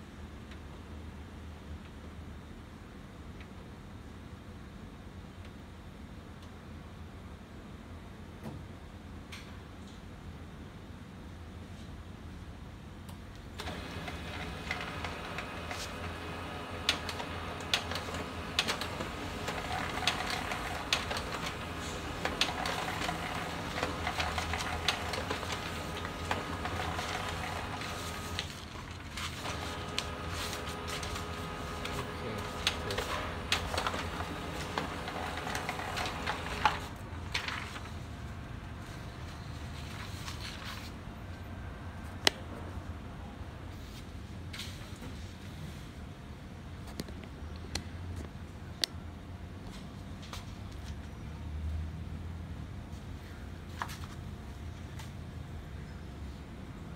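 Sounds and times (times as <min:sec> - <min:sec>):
laser printer printing: 0:13.6 - 0:37.7
rollers whirring: 0:13.6 - 0:37.9.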